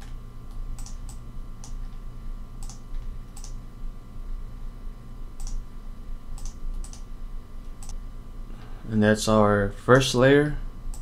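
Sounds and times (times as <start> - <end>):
low electrical hum: 0.0 - 11.0
mouse and keyboard clicking: 3.4 - 3.6, 6.4 - 7.0.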